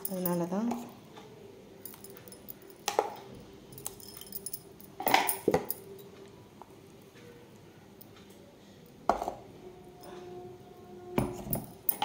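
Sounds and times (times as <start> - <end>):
spoon clinking against metal: 11.3 - 12.0.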